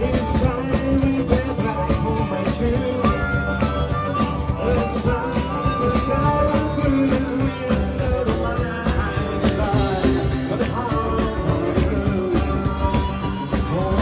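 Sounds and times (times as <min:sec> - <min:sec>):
blues band playing: 0:00.0 - 0:14.0
person singing: 0:00.0 - 0:14.0.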